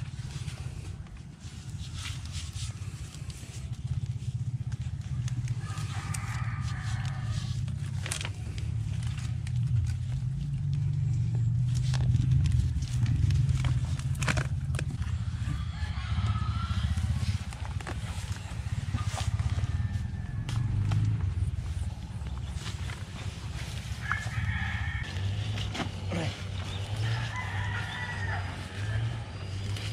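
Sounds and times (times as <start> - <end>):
string rustling against bamboo: 0.0 - 16.0
steady low rumble: 0.0 - 29.9.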